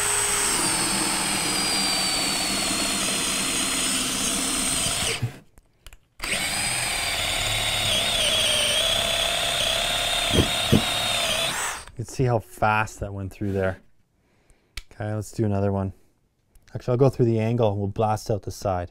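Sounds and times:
cordless drill boring through wood: 0.0 - 5.4, 6.2 - 12.0.

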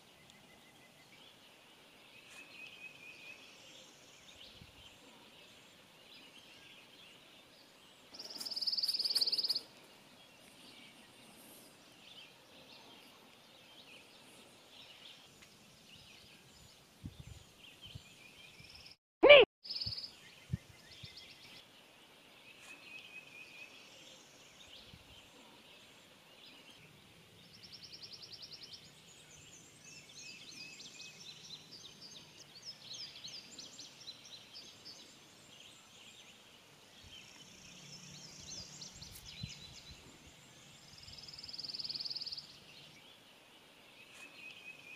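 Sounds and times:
birds chirping and trilling: 19.7 - 44.9.

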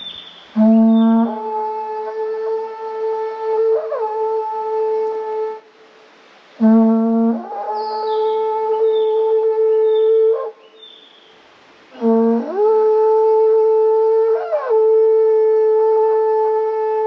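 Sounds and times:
conch-shell trumpet blasts: 0.0 - 5.7, 6.6 - 10.6, 11.9 - 17.0.

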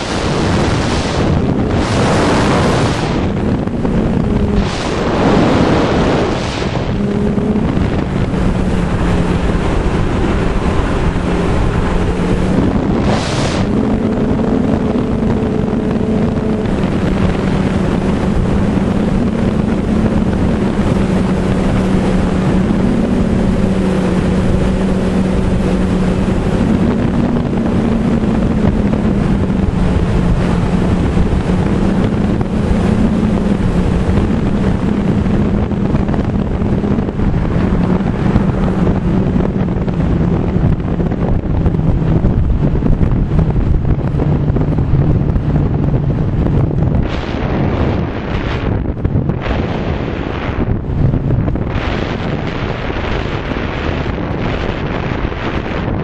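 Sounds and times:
droning hum: 0.0 - 56.0
wind rushing over microphone: 0.0 - 56.0.

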